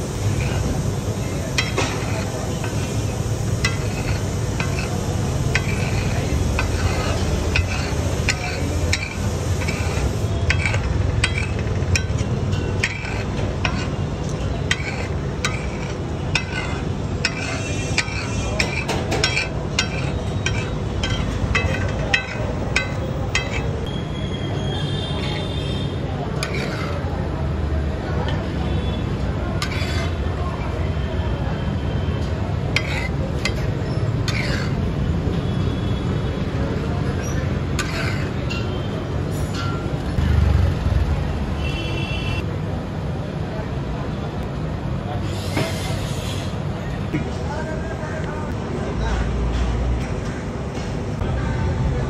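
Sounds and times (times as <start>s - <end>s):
oil sizzling: 0.0s - 23.8s
metal spatula striking griddle: 1.5s - 23.9s, 26.4s - 27.1s, 29.6s - 30.2s, 32.7s - 34.8s, 37.2s - 38.8s.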